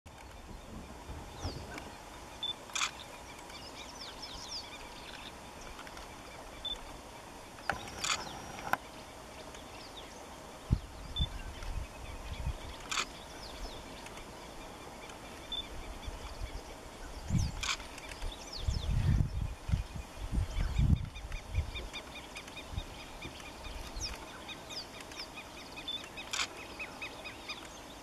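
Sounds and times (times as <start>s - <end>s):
small birds chirping: 0.1s - 28.0s
sharp clicks: 7.6s - 8.8s.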